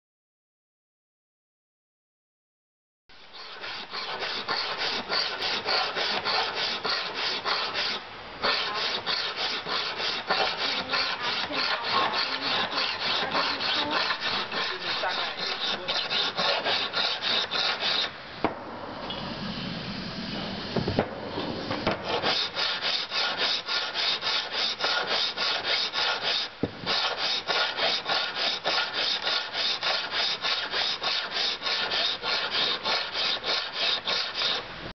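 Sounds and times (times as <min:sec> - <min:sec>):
blade scraping on sharpening stone: 0:03.4 - 0:18.1.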